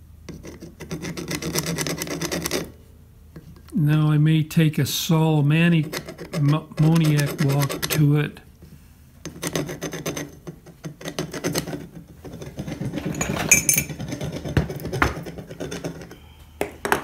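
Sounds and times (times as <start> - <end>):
metal hand tools clinking on wood: 13.0 - 14.0
metallic ring: 13.1 - 13.9.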